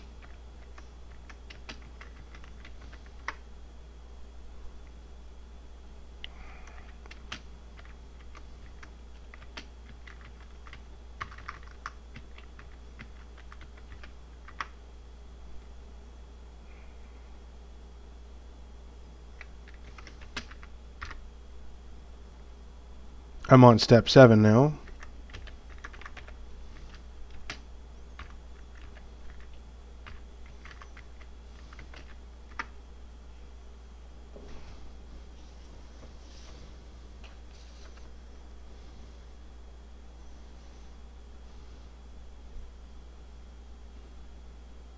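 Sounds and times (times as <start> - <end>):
steady low hum: 0.0 - 44.9
keyboard keystrokes: 0.2 - 3.4, 6.7 - 14.7, 19.4 - 21.2, 24.8 - 27.6, 28.2 - 32.7.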